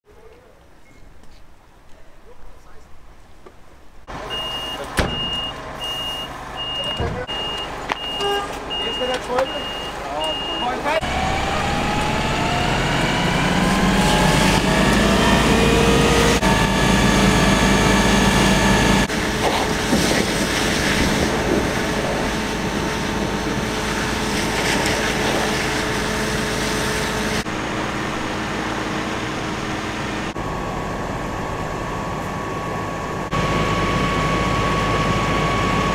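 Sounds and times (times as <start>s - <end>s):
fire engine pump whining: 4.1s - 35.9s
fire hose spraying water: 19.1s - 27.5s.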